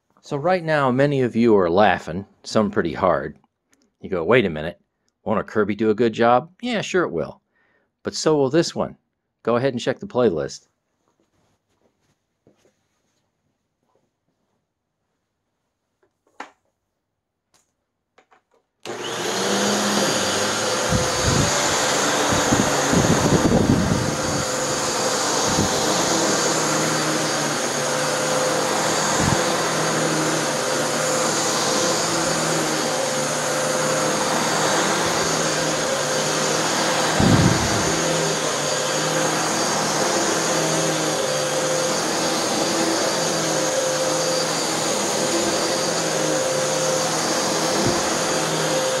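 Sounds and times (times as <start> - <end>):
vacuum cleaner running: 18.8 - 49.0
low thumps of vacuum moving: 37.1 - 38.3.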